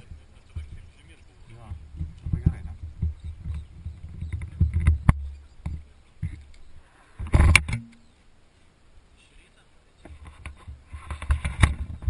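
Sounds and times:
camera handling rumbling and rubbing: 1.7 - 7.8, 10.1 - 12.0.

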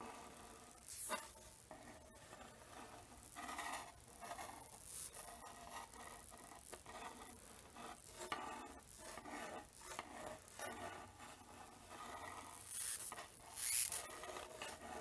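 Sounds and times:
high-voltage hissing and rasping: 0.7 - 1.8, 4.0 - 11.2, 12.5 - 14.8.

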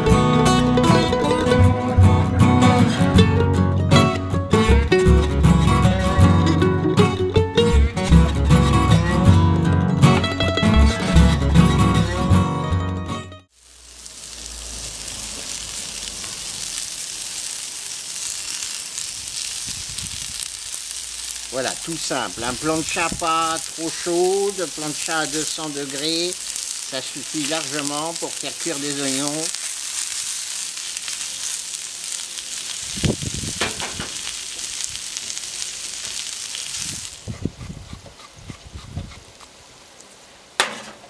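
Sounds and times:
onions sizzling on hot plate: 13.5 - 37.4.

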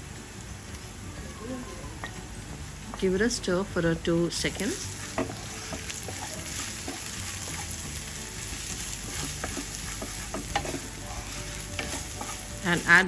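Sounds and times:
food sizzling in oil: 0.0 - 13.0
wooden spatula scraping pan: 4.4 - 13.0.

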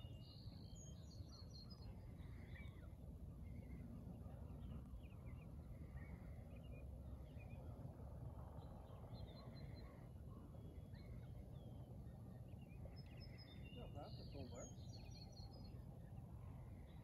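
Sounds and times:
faint bird calls and chirps: 8.6 - 17.0.

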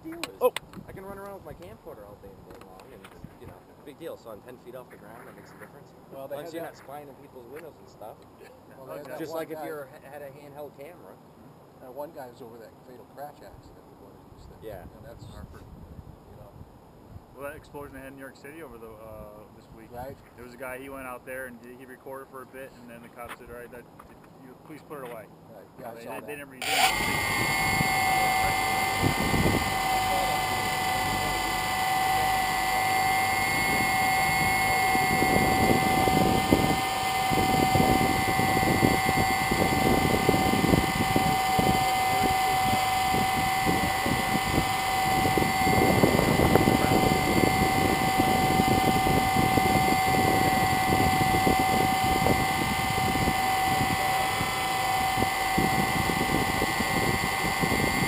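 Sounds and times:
drone motors humming: 26.6 - 58.0
propeller wash rushing: 26.6 - 58.0.

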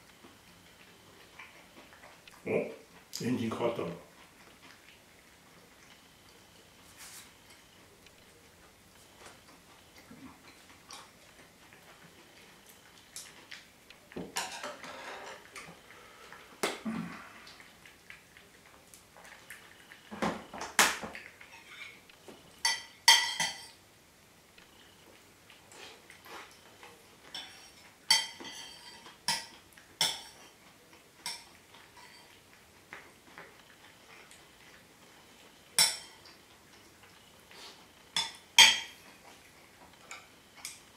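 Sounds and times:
cat licking and chewing: 0.0 - 20.1, 24.6 - 40.9
tableware clinks: 22.6 - 23.8.

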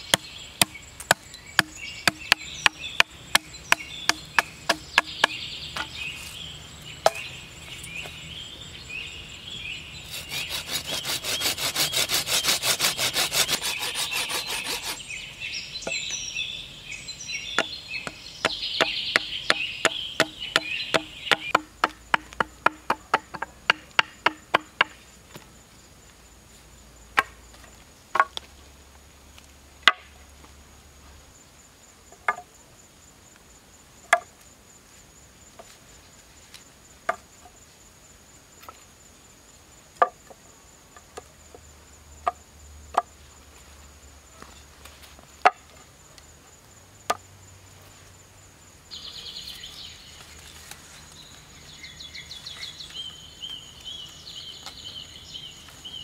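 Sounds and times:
blade sawing across wood: 10.1 - 15.0
machete chopping wood: 18.8 - 25.0.

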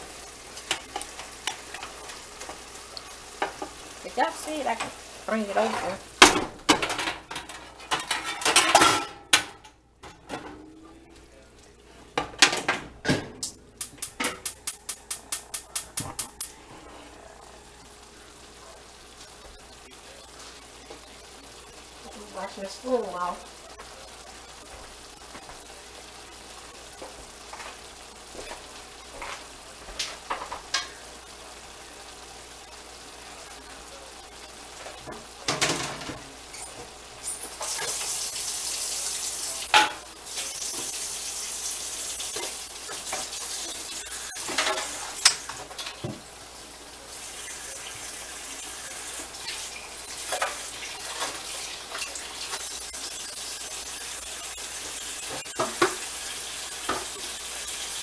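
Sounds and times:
meat sizzling in a pan: 0.0 - 8.8, 13.8 - 58.0
spoon stirring against a pan: 0.0 - 8.8, 34.8 - 46.3, 47.1 - 58.0.

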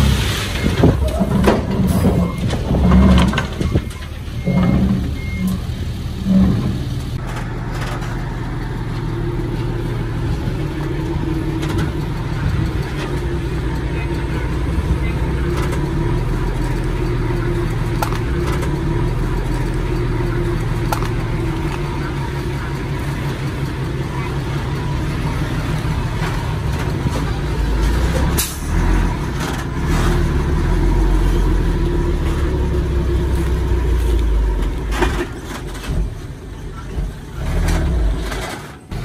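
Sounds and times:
heavy diesel machinery running: 0.0 - 39.0.

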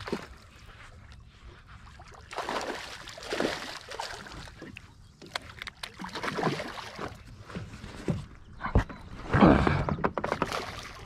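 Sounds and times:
fish splashing in water: 2.0 - 7.3.

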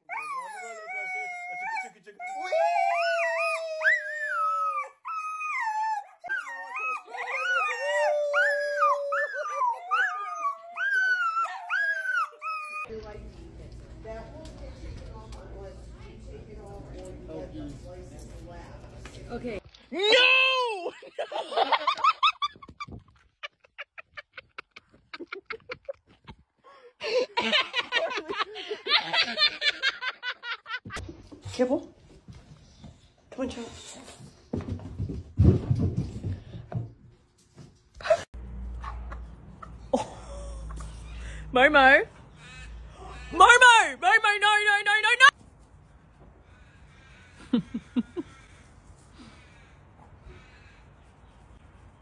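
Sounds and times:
dog yelping and whining: 0.0 - 12.9.

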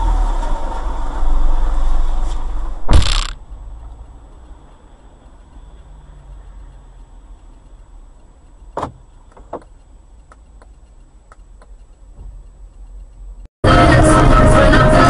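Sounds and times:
vehicle low rumble: 0.0 - 14.4
sharp knock: 2.8 - 3.4
light ticks: 3.4 - 13.5.

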